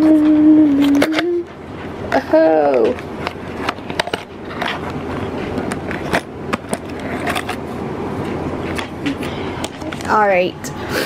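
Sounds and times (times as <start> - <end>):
tape and paper rustling: 2.2 - 10.3
sharp clicks and scrapes: 2.8 - 10.1.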